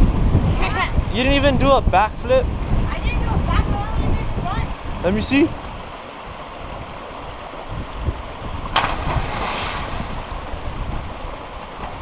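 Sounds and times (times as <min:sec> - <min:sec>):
wind noise on microphone: 0:00.0 - 0:12.0
churning water: 0:02.6 - 0:12.0
person splashing into water: 0:08.7 - 0:10.3.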